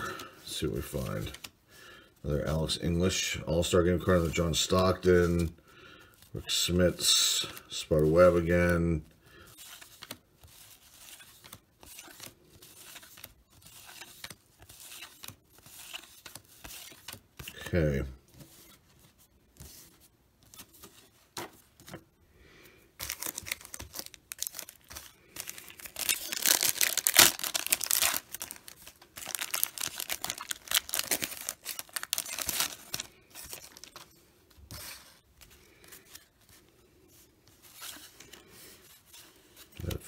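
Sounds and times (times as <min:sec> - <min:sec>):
card pack wrapper tearing: 0:23.0 - 0:34.0.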